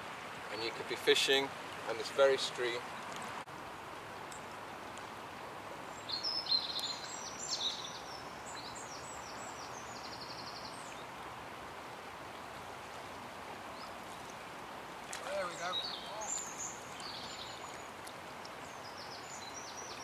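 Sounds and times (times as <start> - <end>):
shallow river flowing: 0.0 - 20.0
songbird singing: 5.8 - 11.3, 13.6 - 20.0.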